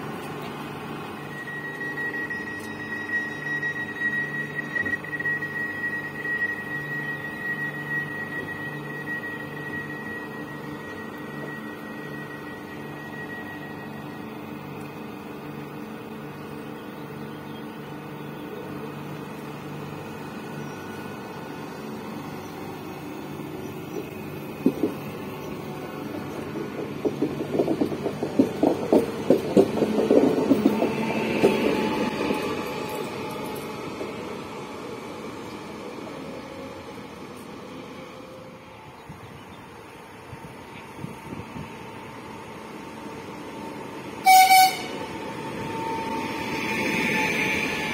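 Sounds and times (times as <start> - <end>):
electric train motor hum: 0.0 - 47.9
train wheels clattering over joints: 23.9 - 33.7.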